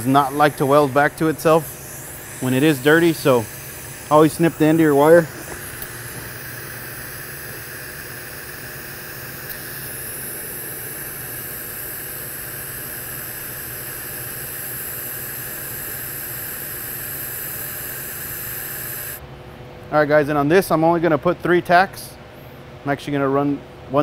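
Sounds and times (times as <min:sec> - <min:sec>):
welding arc hiss and buzz: 0:00.0 - 0:19.2.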